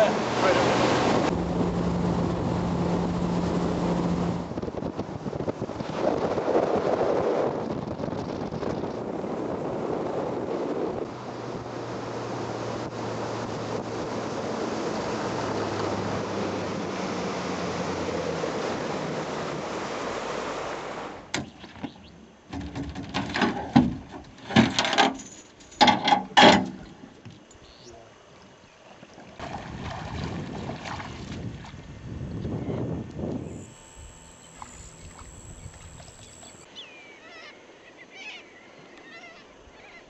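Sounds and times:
water rushing: 0:00.0 - 0:04.6, 0:11.1 - 0:21.3
boat motor running: 0:00.0 - 0:06.0, 0:08.4 - 0:22.7, 0:29.0 - 0:36.7
wind: 0:00.0 - 0:40.0
loud knocks and clunks: 0:21.3 - 0:25.2, 0:25.8 - 0:27.0.

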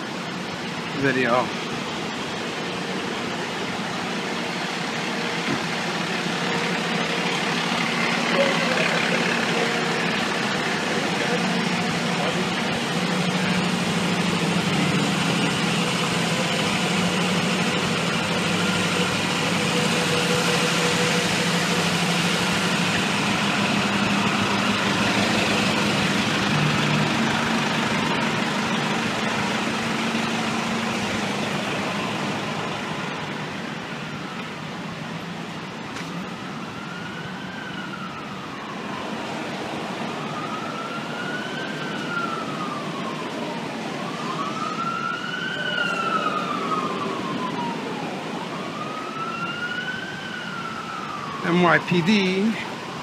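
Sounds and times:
diesel engine idling: 0:00.0 - 0:37.0
distant siren wailing: 0:00.0 - 0:53.0.

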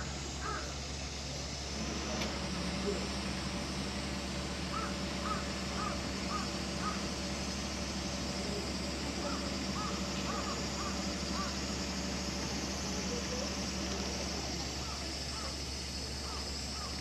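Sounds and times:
steady low hum: 0:00.0 - 0:17.0
crow cawing: 0:00.4 - 0:00.7, 0:04.7 - 0:07.1, 0:09.2 - 0:11.7, 0:16.2 - 0:17.0.

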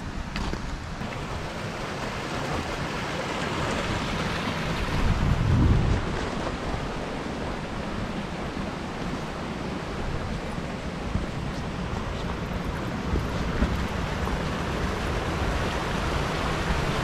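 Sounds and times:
wind on microphone: 0:03.8 - 0:17.0.

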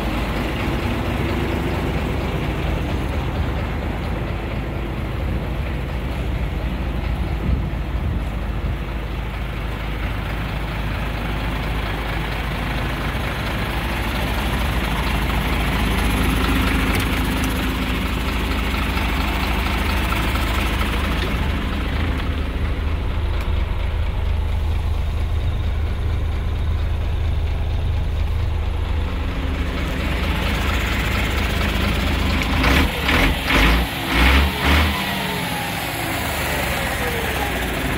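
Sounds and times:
diesel truck engine idling: 0:00.0 - 0:37.9.

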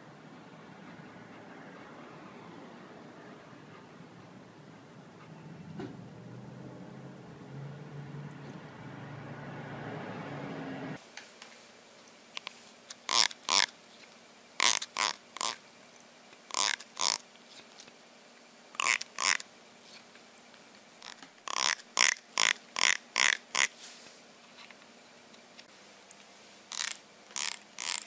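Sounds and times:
fingertip rasping comb teeth: 0:13.1 - 0:13.7, 0:14.6 - 0:15.6, 0:16.5 - 0:17.2, 0:18.8 - 0:19.4, 0:21.0 - 0:23.7, 0:26.7 - 0:28.0.

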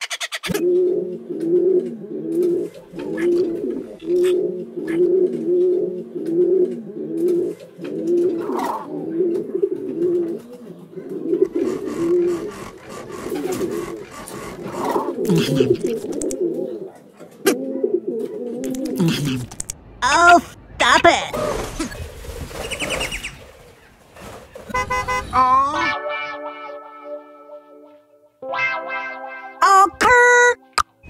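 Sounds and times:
pigeons cooing: 0:00.0 - 0:19.8
faint clicks: 0:15.6 - 0:16.4, 0:18.6 - 0:19.8.

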